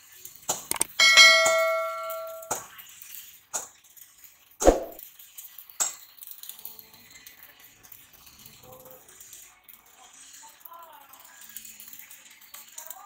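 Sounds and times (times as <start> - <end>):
metallic clangs: 0.7 - 2.6.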